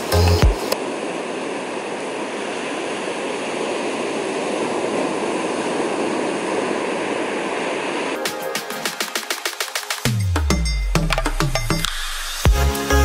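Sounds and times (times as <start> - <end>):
waves washing up a beach: 0.0 - 10.1.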